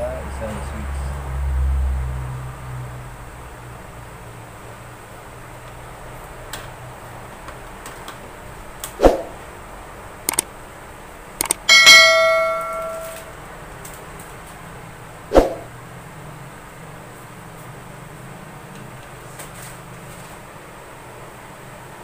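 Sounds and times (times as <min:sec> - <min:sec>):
mouse clicks: 0:10.3 - 0:10.5, 0:11.4 - 0:11.6
notification bell ding: 0:11.7 - 0:13.3.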